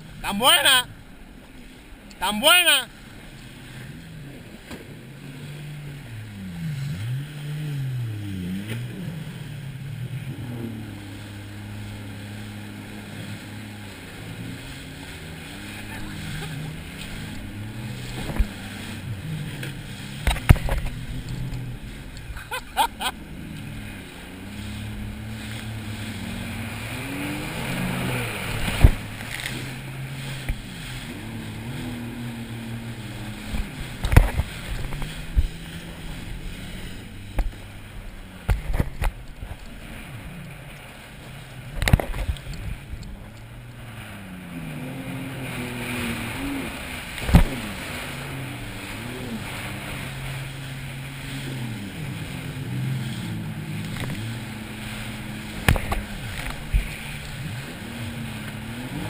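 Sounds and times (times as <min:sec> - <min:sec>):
watercraft engine revving: 0:00.0 - 0:59.0
hull slamming onto water: 0:28.4 - 0:29.8, 0:47.0 - 0:48.2, 0:55.5 - 0:57.0.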